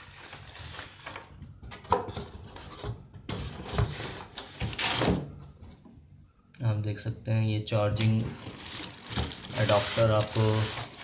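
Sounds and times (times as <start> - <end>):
cardboard rustling and scraping: 0.0 - 5.8, 8.1 - 11.0.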